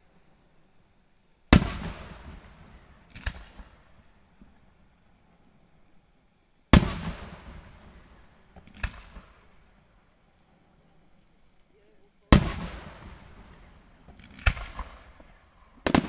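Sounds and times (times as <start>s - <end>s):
loud fireworks bangs: 1.5s - 4.5s, 6.7s - 9.6s, 12.3s - 16.0s
fainter sharp crack: 6.8s - 9.6s, 12.3s - 16.0s.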